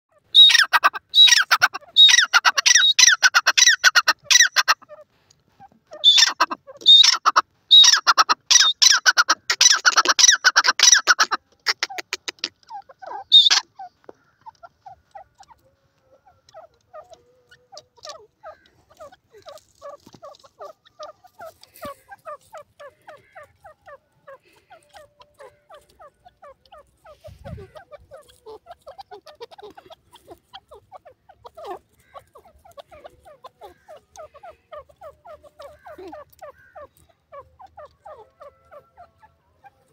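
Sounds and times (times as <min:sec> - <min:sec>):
francolin calling: 0:00.1 - 0:05.1, 0:05.9 - 0:39.9.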